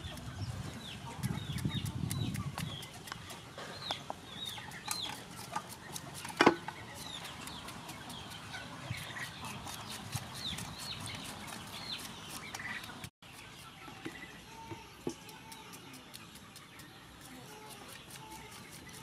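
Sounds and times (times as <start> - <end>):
chickens calling: 0.0 - 19.0.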